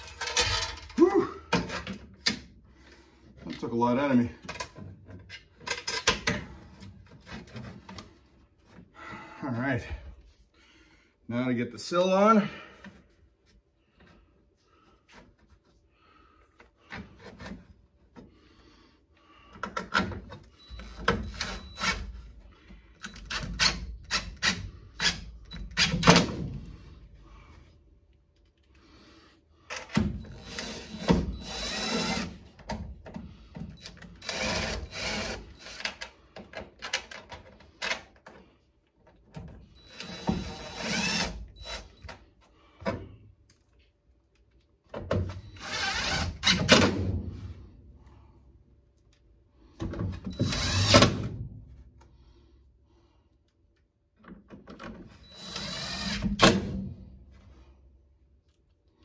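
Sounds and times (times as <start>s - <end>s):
parts knocking and clattering: 0.0s - 2.5s
power drill driving screws: 20.6s - 22.0s, 30.2s - 32.4s, 33.8s - 36.0s, 39.8s - 42.0s, 45.4s - 46.8s, 50.3s - 51.1s, 55.2s - 56.7s.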